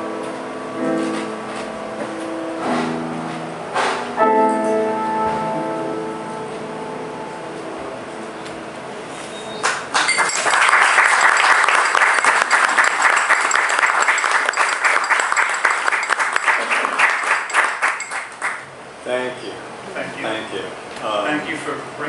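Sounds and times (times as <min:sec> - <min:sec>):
piano chord ringing: 0:00.0 - 0:09.0
audience applause: 0:09.6 - 0:18.6.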